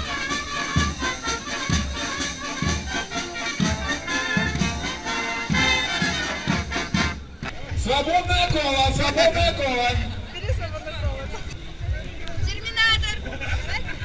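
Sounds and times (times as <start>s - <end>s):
brass band playing a march: 0.0s - 7.4s.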